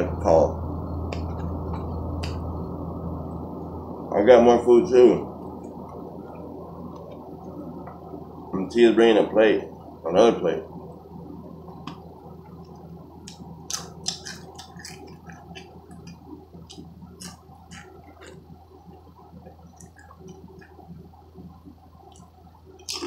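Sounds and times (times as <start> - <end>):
low steady hum: 0.0 - 23.0
person chewing potato chips: 13.2 - 18.6, 19.4 - 20.9.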